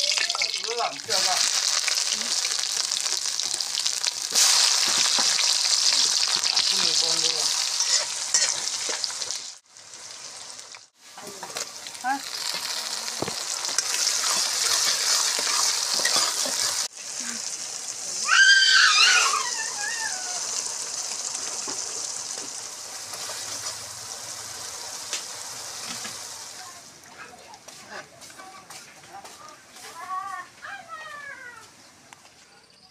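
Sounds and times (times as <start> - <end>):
food sizzling in hot oil: 0.0 - 27.0
metal spatula scraping a pan: 7.5 - 9.4, 13.8 - 16.9.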